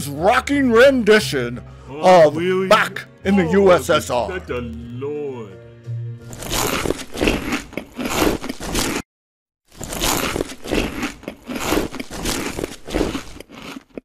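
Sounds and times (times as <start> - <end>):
person biting and chewing: 6.3 - 9.0, 9.7 - 14.0.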